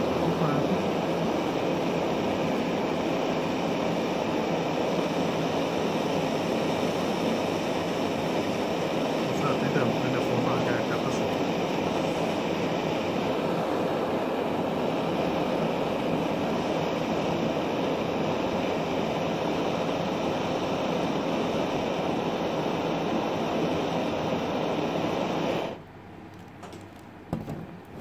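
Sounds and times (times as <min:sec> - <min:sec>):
blowtorch flame rushing: 0:00.0 - 0:25.8
knock: 0:27.3 - 0:27.7.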